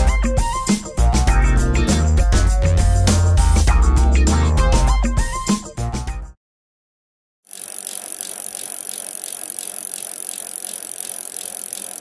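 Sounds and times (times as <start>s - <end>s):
bicycle freewheel ticking: 7.5s - 12.0s.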